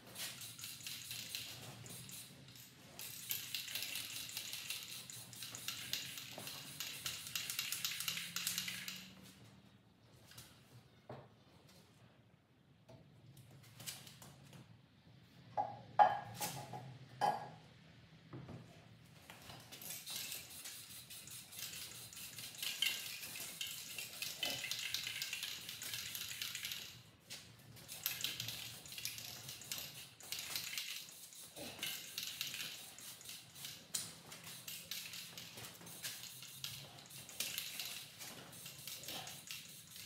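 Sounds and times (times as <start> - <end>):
spray can hissing: 0.1 - 2.4, 3.0 - 9.1, 20.0 - 27.0, 27.9 - 40.0.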